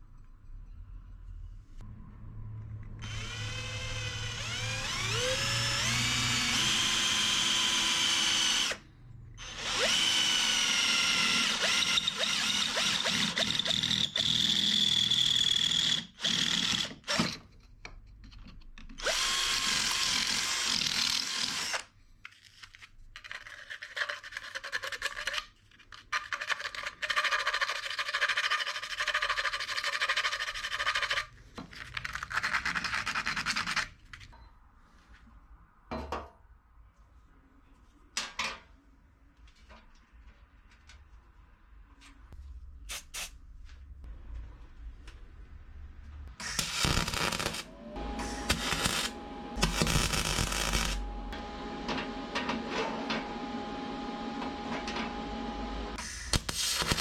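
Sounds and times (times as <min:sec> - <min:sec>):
cordless drill boring through metal: 0:03.0 - 0:08.8, 0:09.4 - 0:17.4, 0:19.0 - 0:21.9, 0:46.4 - 0:51.3.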